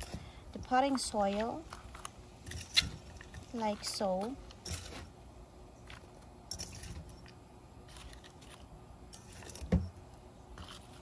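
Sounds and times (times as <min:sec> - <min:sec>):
spoon scooping soil in metal bowl: 0:00.0 - 0:05.2, 0:05.8 - 0:09.7, 0:10.5 - 0:11.0.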